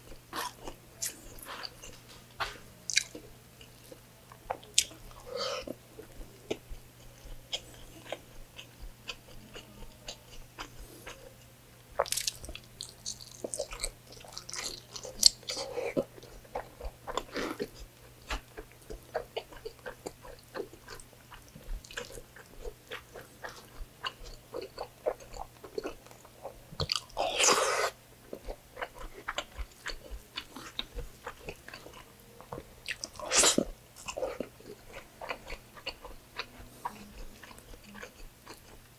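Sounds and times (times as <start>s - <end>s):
wet chewing and lip-smacking: 2.9s - 5.3s, 12.0s - 38.9s.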